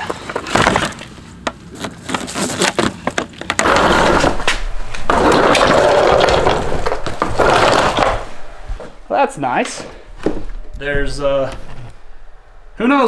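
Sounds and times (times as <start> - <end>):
rough scraping noise: 3.6 - 9.1, 9.8 - 12.8.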